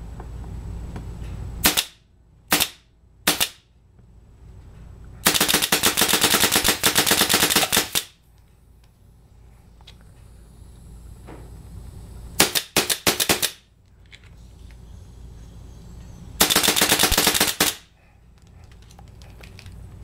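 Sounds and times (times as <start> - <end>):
paintball marker firing: 1.6 - 3.6, 5.3 - 8.2, 12.4 - 13.6, 16.4 - 17.8.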